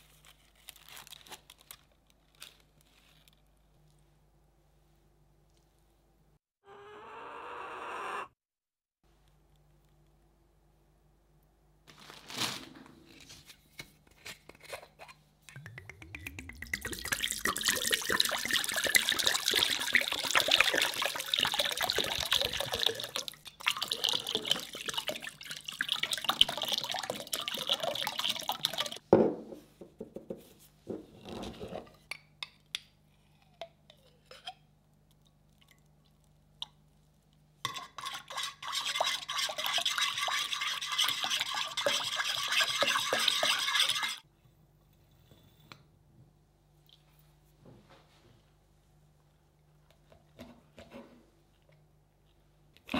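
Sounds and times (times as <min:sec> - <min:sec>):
sauce pouring into glass bowl: 0:15.6 - 0:29.0
utensil stirring in glass bowl: 0:37.7 - 0:44.2.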